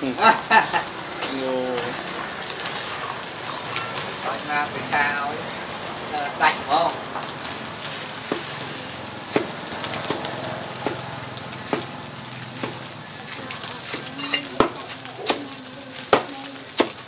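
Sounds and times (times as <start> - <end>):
noodles sizzling in a wok: 0.0 - 17.0
cleaver chopping on wooden block: 9.3 - 11.0, 11.7 - 11.9, 16.1 - 17.0.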